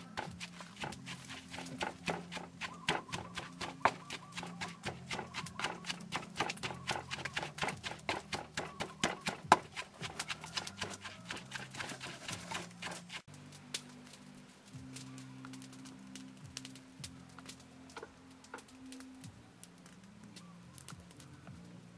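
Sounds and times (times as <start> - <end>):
wooden pestle pounding in mortar: 0.0 - 13.3.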